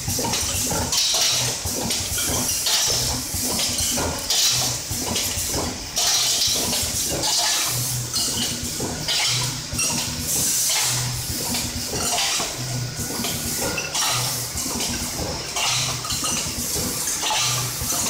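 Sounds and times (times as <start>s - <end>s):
packaging machine hum and hiss: 0.0s - 18.0s
metal parts clinking: 14.9s - 18.0s.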